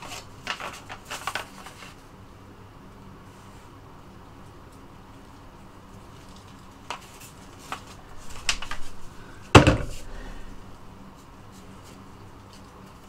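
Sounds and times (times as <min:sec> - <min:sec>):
loud wooden knock: 0:09.4 - 0:10.4.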